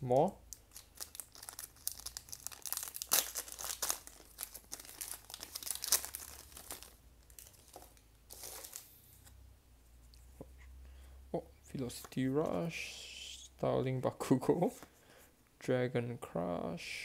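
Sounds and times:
foil wrapper crinkling and tearing: 0:00.7 - 0:08.8.

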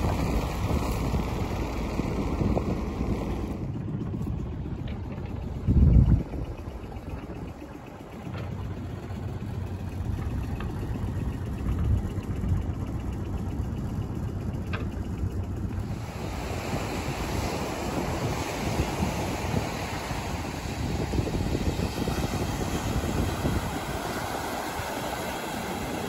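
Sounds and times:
wind rushing over microphone: 0:00.0 - 0:07.6, 0:15.5 - 0:26.0
sea noise: 0:00.0 - 0:26.0.

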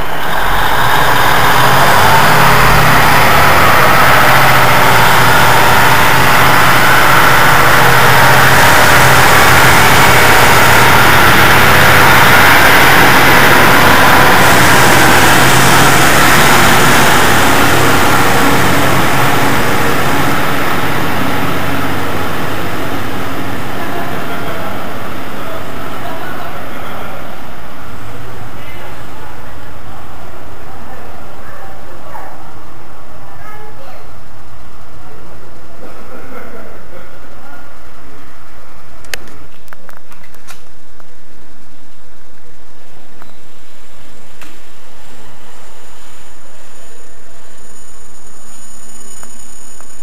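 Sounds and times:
diesel train engines droning: 0:00.0 - 0:50.0
wheel-and-rail noise: 0:00.0 - 0:50.0.

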